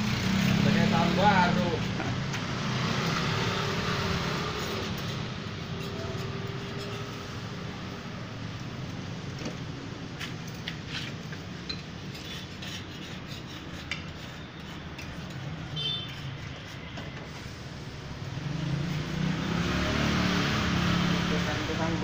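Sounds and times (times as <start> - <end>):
street traffic hum: 0.0 - 22.0
scraper scraping paint off metal: 12.0 - 17.2.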